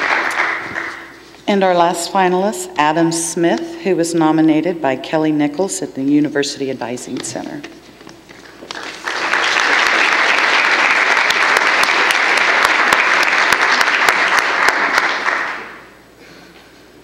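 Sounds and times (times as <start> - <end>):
audience applauding: 0.0 - 1.1, 8.4 - 15.9.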